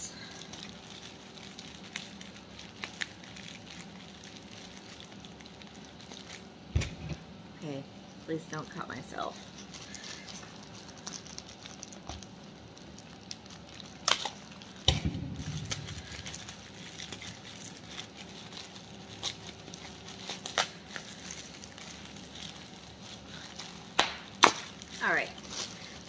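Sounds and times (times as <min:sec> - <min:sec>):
packaging rustling: 0:00.2 - 0:07.0, 0:09.3 - 0:26.0
packaging snapping: 0:09.8 - 0:26.0.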